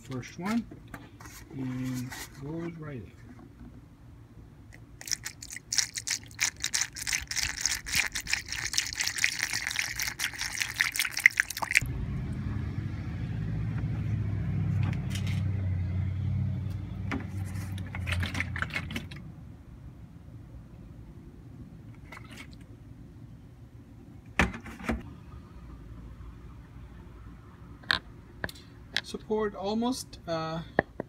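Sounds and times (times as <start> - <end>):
coolant glugging into funnel: 5.0 - 11.8, 21.9 - 22.7.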